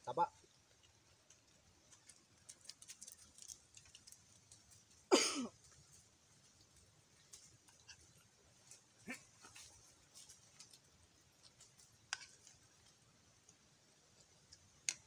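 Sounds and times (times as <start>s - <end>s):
people eating by hand: 0.3s - 15.0s.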